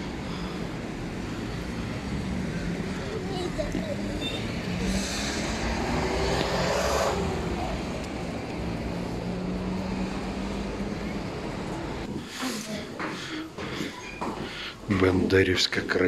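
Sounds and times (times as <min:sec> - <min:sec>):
vehicle passing close by: 0:00.0 - 0:12.3
city traffic hum: 0:00.0 - 0:16.0.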